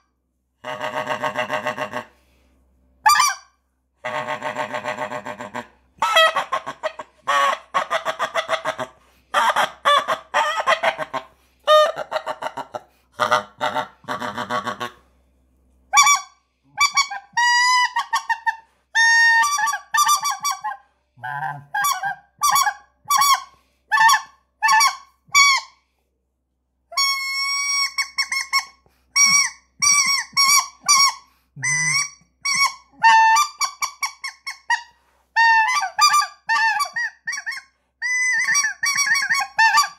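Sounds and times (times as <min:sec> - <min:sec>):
goose call honks: 0:00.6 - 0:02.2, 0:04.0 - 0:15.0.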